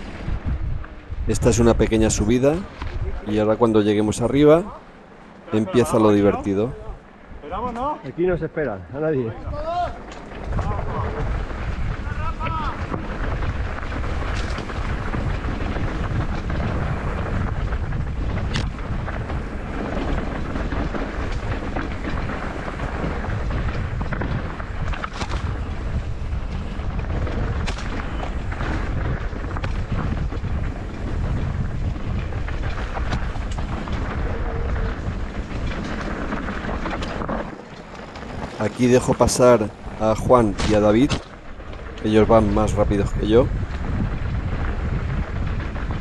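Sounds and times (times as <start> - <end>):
bike tyres on dirt: 0.0 - 46.0
wind buffeting microphone: 0.0 - 46.0
bike knocks and rattles: 9.6 - 42.0, 42.9 - 46.0.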